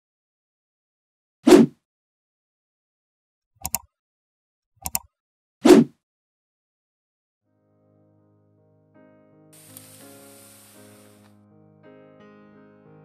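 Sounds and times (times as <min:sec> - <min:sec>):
mouse clicks: 0:03.6 - 0:03.9, 0:04.8 - 0:05.1.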